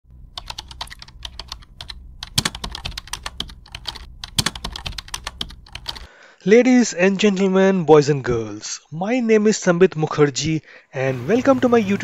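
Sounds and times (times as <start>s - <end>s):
low steady hum: 0.1s - 6.3s
keyboard key clicks: 0.4s - 6.1s.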